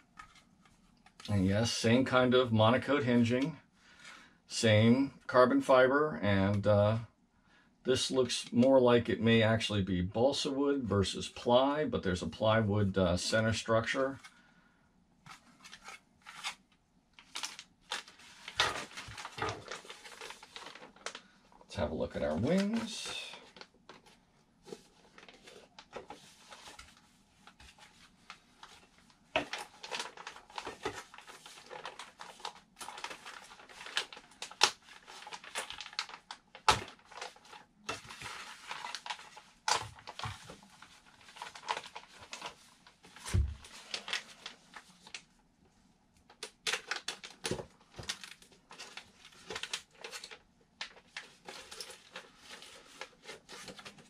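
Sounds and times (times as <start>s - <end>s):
plastic bags crinkling: 17.2s - 24.1s, 28.6s - 45.2s, 46.3s - 54.0s.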